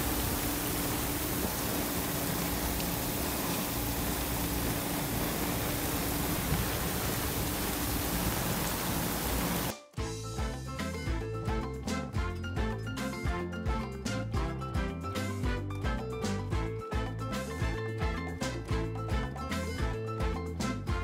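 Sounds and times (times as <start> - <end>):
faint steady hum: 0.0 - 9.7
rain falling on sea and boat: 0.0 - 9.7
music: 0.0 - 21.0.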